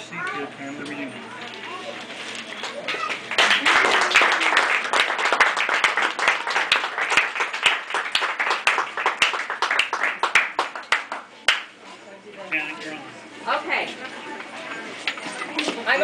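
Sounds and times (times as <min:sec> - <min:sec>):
people applauding: 0:02.5 - 0:11.7.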